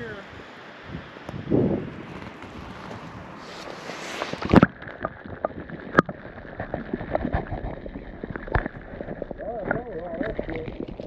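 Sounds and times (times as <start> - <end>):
water rushing and splash: 0.0 - 11.0
muffled underwater clicks and knocks: 4.2 - 11.0.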